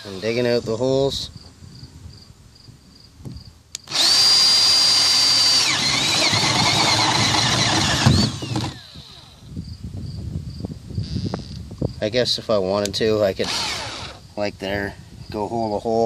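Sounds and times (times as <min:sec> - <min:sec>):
power drill whining: 0:03.8 - 0:09.5, 0:13.4 - 0:14.2.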